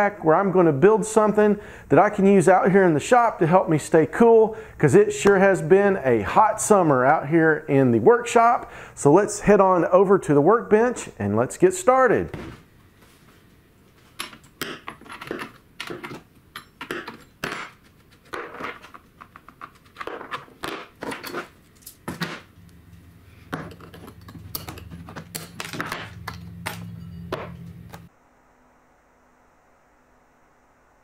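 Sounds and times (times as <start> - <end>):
low steady hum: 21.1 - 31.0
tools clunking on wooden workbench: 23.5 - 28.1.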